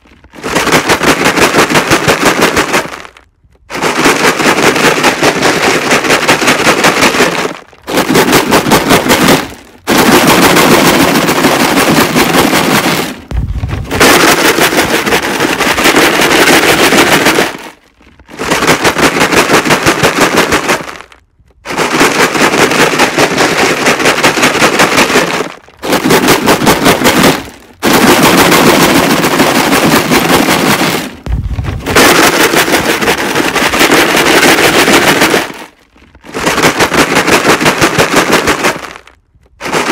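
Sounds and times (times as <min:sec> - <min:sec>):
rocks rattling in plastic jug: 0:00.0 - 0:39.9
dull low thud: 0:13.2 - 0:14.0, 0:31.2 - 0:32.0.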